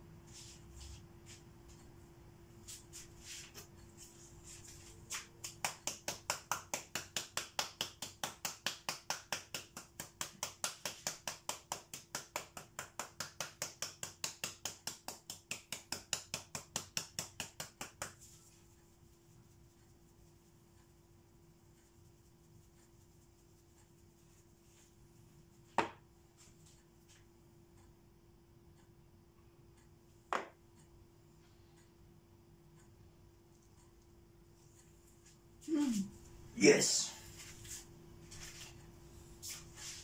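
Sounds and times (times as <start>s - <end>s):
faint steady hum: 0.0s - 40.0s.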